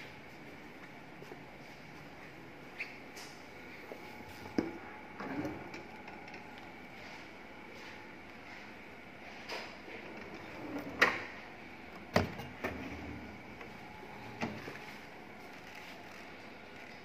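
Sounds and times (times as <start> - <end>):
drawers sliding on metal runners: 10.0 - 11.4, 12.0 - 13.4.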